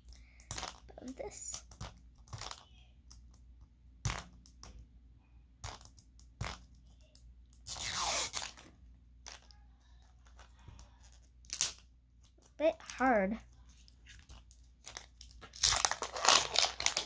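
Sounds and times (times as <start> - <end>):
plastic tearing crinkle: 7.7 - 8.7, 11.4 - 11.8, 14.0 - 17.0
plastic crackling and clicking: 13.8 - 17.0.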